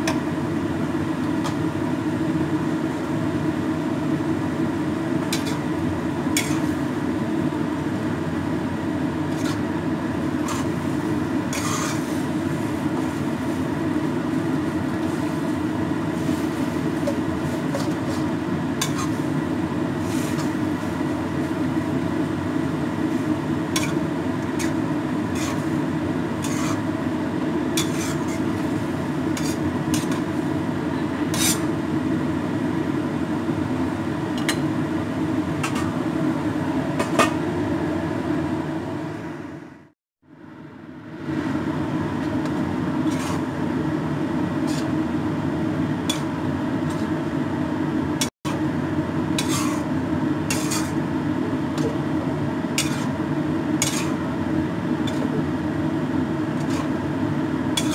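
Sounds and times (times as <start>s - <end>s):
utensils scraping a wok: 5.2s - 5.7s, 6.3s - 6.8s, 9.2s - 9.7s, 10.4s - 13.4s, 16.2s - 19.4s, 20.0s - 20.9s, 23.1s - 26.9s, 27.8s - 30.4s, 31.3s - 31.7s, 35.6s - 36.0s, 42.4s - 43.6s, 44.6s - 45.0s, 46.0s - 47.2s, 49.4s - 51.0s, 52.7s - 53.2s, 53.8s - 54.3s, 55.0s - 55.4s, 56.5s - 57.0s.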